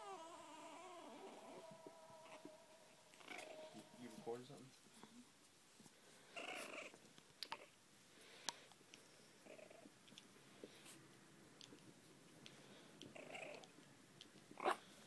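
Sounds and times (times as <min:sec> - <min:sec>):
puppy vocalizations: 0:00.0 - 0:03.8, 0:06.4 - 0:07.8, 0:13.1 - 0:13.7, 0:14.5 - 0:15.0.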